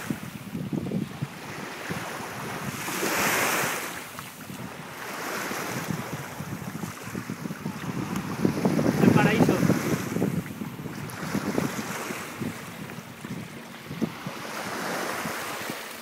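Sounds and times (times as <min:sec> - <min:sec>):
small waves washing on shore: 0:00.0 - 0:16.0
wind buffeting microphone: 0:00.0 - 0:16.0.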